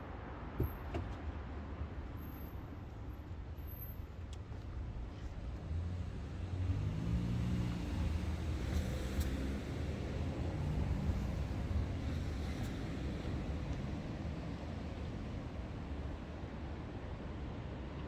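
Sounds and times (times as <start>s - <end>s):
traffic rumble: 0.0s - 18.0s.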